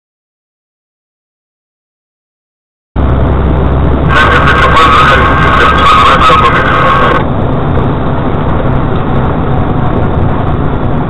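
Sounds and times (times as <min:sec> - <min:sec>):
car road and engine noise: 0:03.0 - 0:11.0.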